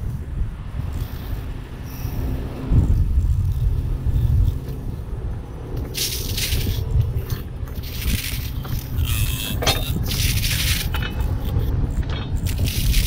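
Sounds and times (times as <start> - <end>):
wind buffeting microphone: 0.0 - 13.0
metallic clinks and rattles: 5.8 - 13.0.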